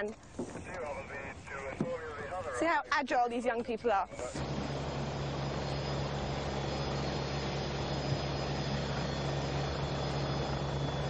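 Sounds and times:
helicopter engine and rotor: 0.1 - 11.0.

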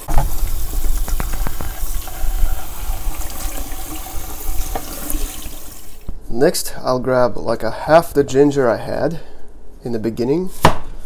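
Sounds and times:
tap water running into pan: 0.0 - 6.1
water splashing: 0.0 - 6.1.

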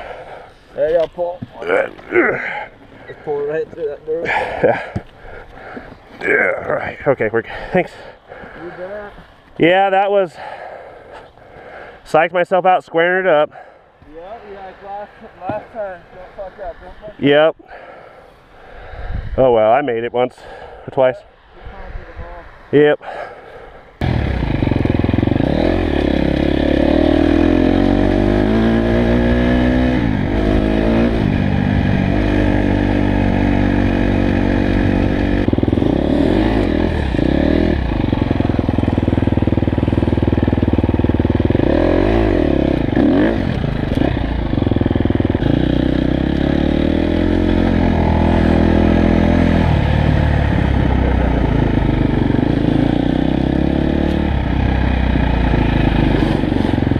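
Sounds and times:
dirt bike engine revving: 24.0 - 56.9.

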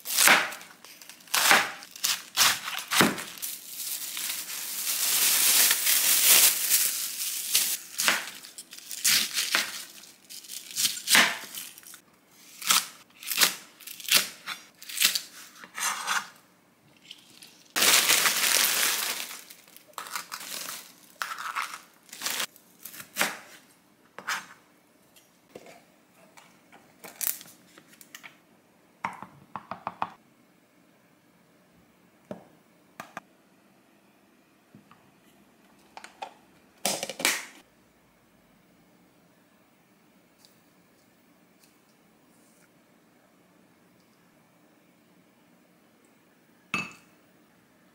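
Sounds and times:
plastic bag crinkling: 0.9 - 12.0, 17.1 - 22.5.

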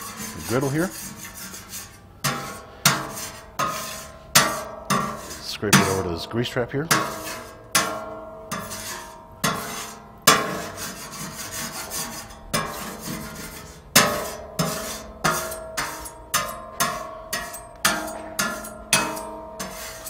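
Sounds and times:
metal spatula scraping griddle: 0.0 - 20.0
steel plate ringing: 2.2 - 11.3, 13.9 - 20.0.

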